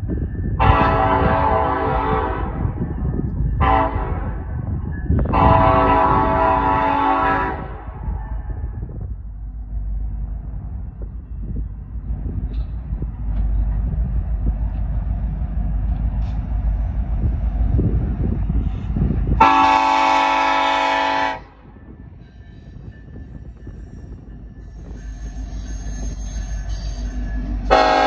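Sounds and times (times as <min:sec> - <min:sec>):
diesel locomotives rumbling: 0:00.0 - 0:28.0
locomotive air horn blast: 0:00.6 - 0:02.6, 0:03.6 - 0:04.5, 0:05.3 - 0:08.0, 0:19.4 - 0:21.6, 0:27.7 - 0:28.0.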